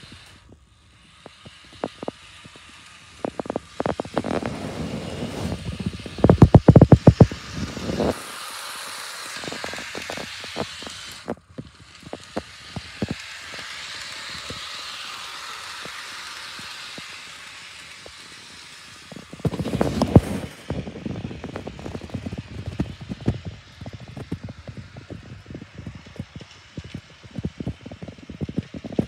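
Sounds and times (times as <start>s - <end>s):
model locomotive whirring: 0.0s - 29.0s
model train wheels clicking: 0.0s - 29.0s.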